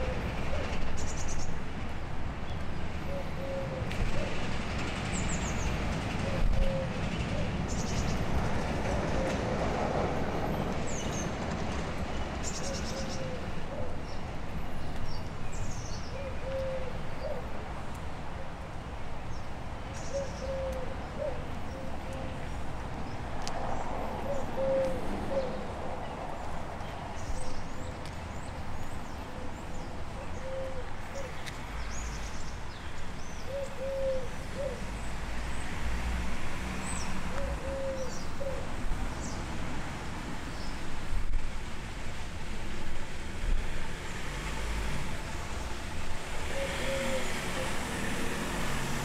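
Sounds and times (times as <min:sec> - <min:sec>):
dove cooing: 0:03.1 - 0:04.3, 0:06.2 - 0:07.5, 0:08.9 - 0:09.6, 0:16.2 - 0:17.4, 0:20.1 - 0:22.4, 0:24.2 - 0:25.6, 0:30.4 - 0:31.3, 0:33.5 - 0:34.8, 0:37.3 - 0:38.7, 0:46.5 - 0:47.8.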